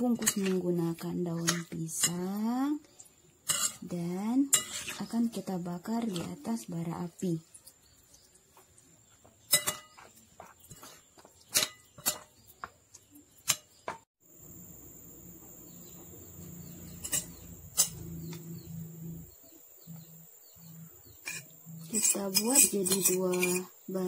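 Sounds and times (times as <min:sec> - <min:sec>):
spoon clinking on plate: 0:16.9 - 0:18.3.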